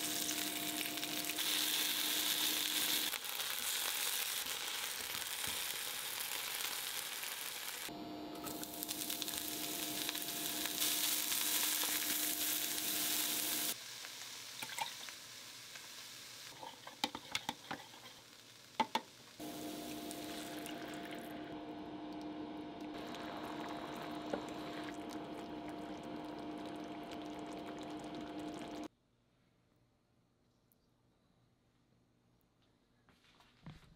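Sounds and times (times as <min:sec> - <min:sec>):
food sizzling in a frying pan: 0:00.0 - 0:21.3, 0:22.9 - 0:28.9
steady hum: 0:07.9 - 0:13.8, 0:19.4 - 0:28.9
sauce bubbling in a pan: 0:08.6 - 0:21.4, 0:22.9 - 0:28.9.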